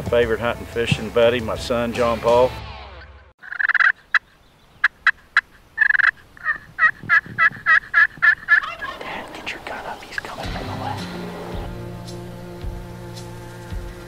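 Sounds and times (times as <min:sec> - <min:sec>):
wild turkeys calling: 0:03.4 - 0:11.8.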